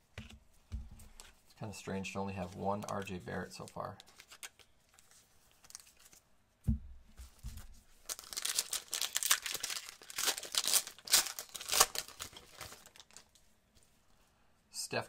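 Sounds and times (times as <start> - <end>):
wrapper tearing and crinkling: 5.6 - 6.2, 8.0 - 13.4.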